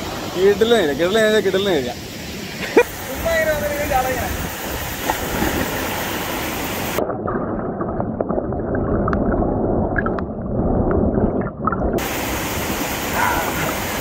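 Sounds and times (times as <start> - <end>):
waterfall roaring: 0.0 - 7.0, 12.0 - 14.0
underwater bubbling pops: 7.0 - 12.2.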